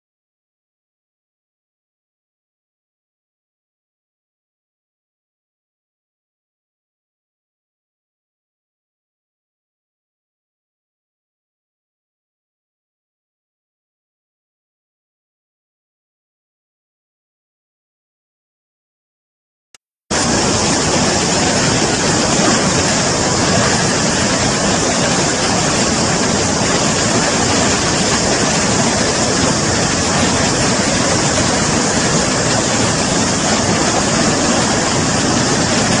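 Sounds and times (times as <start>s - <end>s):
torrent of rushing water: 20.1s - 36.0s.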